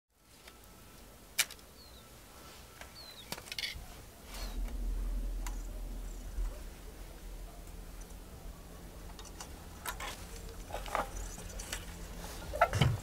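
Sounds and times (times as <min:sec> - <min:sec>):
low rumble of wire drawn through wood: 0:04.2 - 0:12.1.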